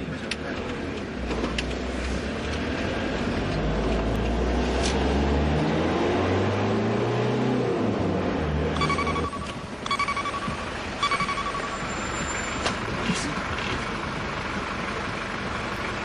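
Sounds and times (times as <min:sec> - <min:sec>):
low engine hum: 0:00.0 - 0:16.0
vehicle noise: 0:00.0 - 0:16.0
short electronic beeps: 0:08.8 - 0:12.6.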